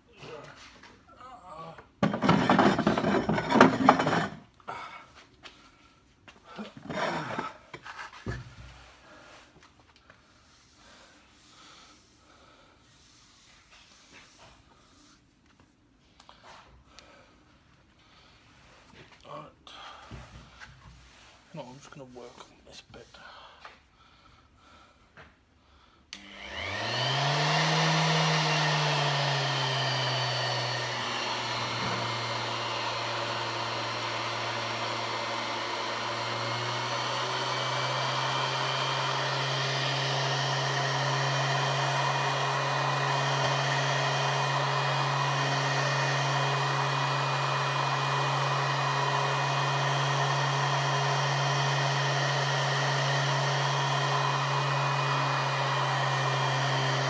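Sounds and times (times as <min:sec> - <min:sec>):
orbital sander motor whining: 0:26.2 - 0:57.0.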